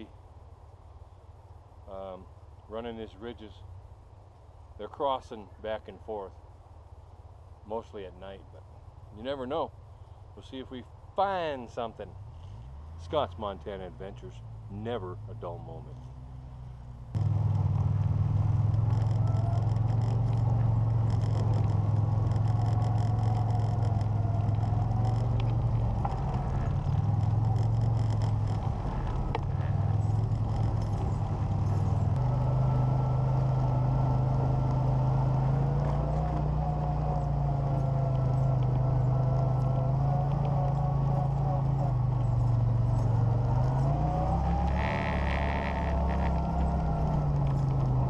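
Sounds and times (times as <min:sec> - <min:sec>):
engine running steadily: 0:11.8 - 0:48.0
bodywork rattling: 0:16.9 - 0:48.0.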